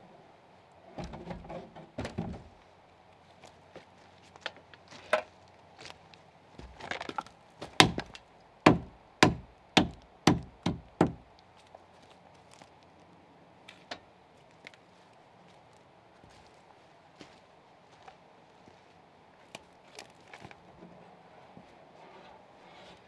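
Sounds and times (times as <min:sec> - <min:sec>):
axe chopping timber: 0:07.6 - 0:11.2.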